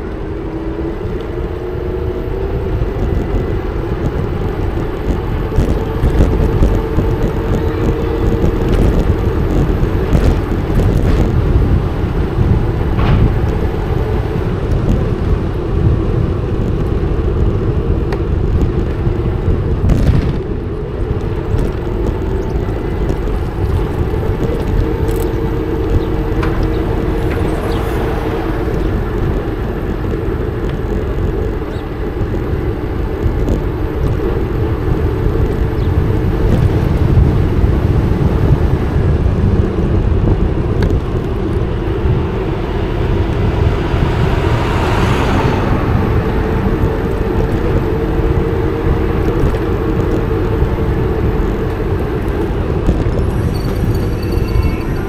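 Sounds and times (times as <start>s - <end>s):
steady low hum: 0.0s - 55.0s
wind rumbling on microphone: 0.0s - 55.0s
rushing swell: 25.1s - 30.3s, 42.2s - 48.7s.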